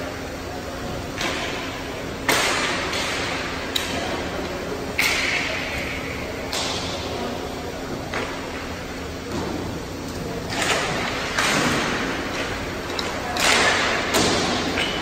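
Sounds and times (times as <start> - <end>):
hockey sticks and puck cracking: 1.2 - 7.3, 10.1 - 15.0.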